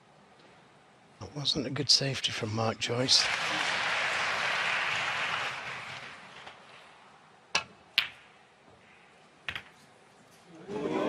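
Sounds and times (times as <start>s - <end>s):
audience applause: 3.0s - 6.8s
cue striking ball click: 7.5s - 8.2s
snooker balls clicking: 7.5s - 8.4s, 9.4s - 9.9s.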